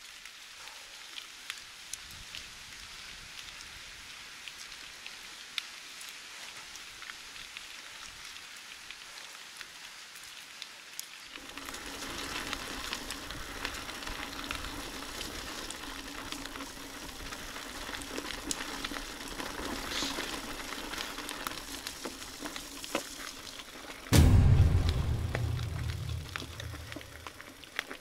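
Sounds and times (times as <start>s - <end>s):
bike tyres crackling on road: 2.3s - 24.1s.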